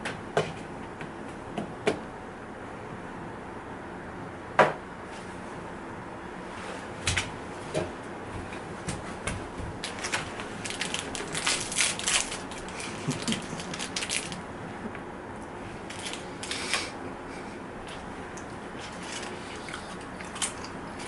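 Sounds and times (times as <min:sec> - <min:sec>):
plastic wrapper crinkling: 0:09.8 - 0:14.4, 0:15.9 - 0:16.6.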